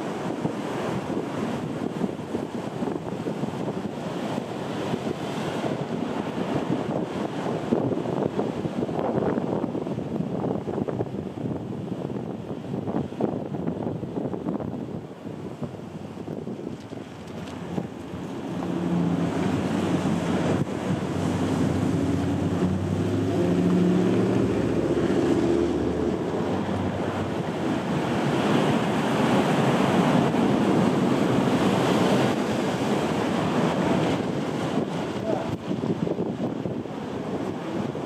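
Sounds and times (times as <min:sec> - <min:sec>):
ocean surf breaking on rocks: 0:00.0 - 0:38.0
wind buffeting microphone: 0:00.0 - 0:38.0.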